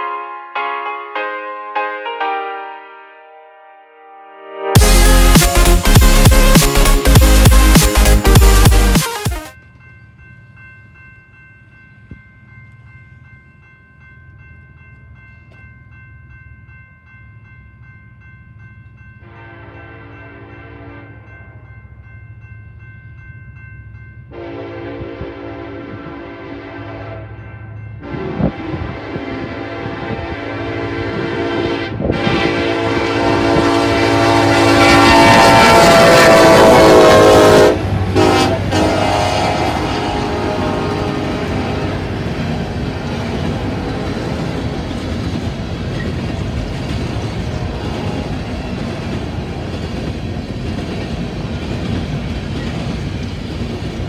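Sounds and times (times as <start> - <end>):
crossing bell ringing: 0.0 - 54.0
distant freight train rumble: 9.6 - 54.0
locomotive air horn: 19.2 - 21.2, 24.3 - 27.4, 28.0 - 42.1, 47.6 - 48.4.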